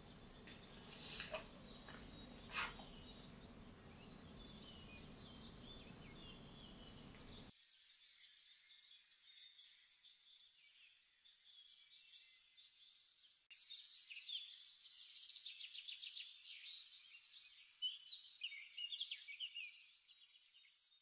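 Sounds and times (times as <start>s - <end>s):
faint room hiss: 0.0s - 7.5s.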